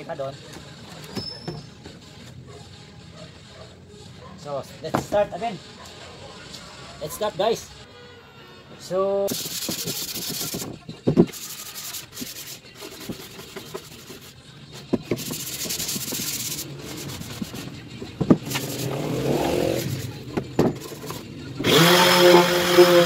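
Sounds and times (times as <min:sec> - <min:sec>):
sandpaper rubbing on wood: 0:09.3 - 0:17.8, 0:18.4 - 0:20.2.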